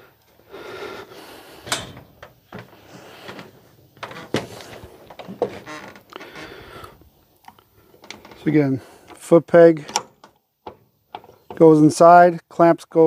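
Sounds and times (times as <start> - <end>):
rustling: 0.3 - 7.1
footsteps on wooden deck: 1.7 - 6.6.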